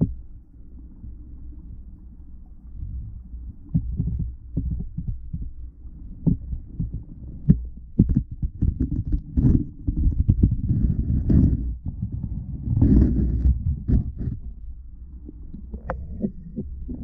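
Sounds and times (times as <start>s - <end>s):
low underwater rumble: 0.0s - 17.0s
knocks and bumps on camera: 3.7s - 5.5s, 6.2s - 14.5s.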